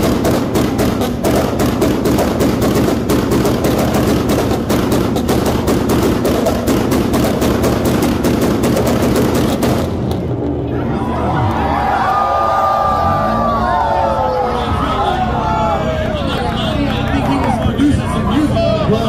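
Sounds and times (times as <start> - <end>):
rapid exhaust bangs: 0.0 - 10.8
car engine running: 0.0 - 11.7.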